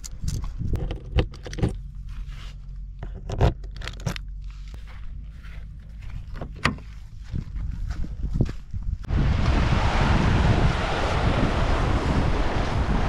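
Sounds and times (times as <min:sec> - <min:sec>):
footsteps on dry grass: 0:01.8 - 0:02.9, 0:04.3 - 0:09.1
low wind rumble: 0:04.2 - 0:13.0.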